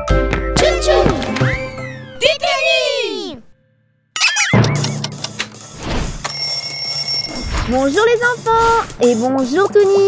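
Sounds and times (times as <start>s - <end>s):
alarm clock bell ringing: 6.2s - 7.6s
alarm clock clicks: 6.2s - 8.3s.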